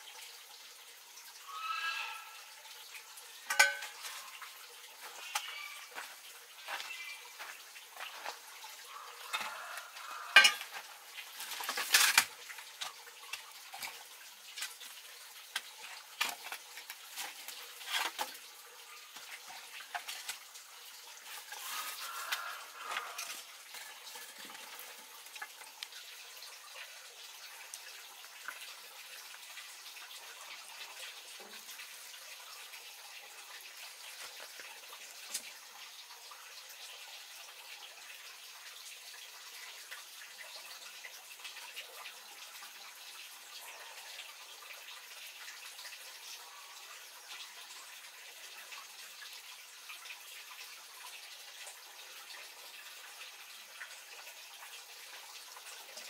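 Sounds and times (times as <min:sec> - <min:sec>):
metal bowl and glass jar clinking: 0:03.5 - 0:04.2, 0:10.3 - 0:10.8.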